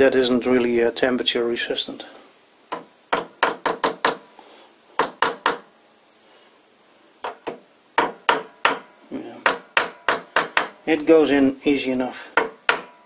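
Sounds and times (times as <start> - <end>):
hammer tapping metal bearing: 2.7 - 4.2, 5.0 - 5.7, 7.2 - 10.8, 12.3 - 13.0.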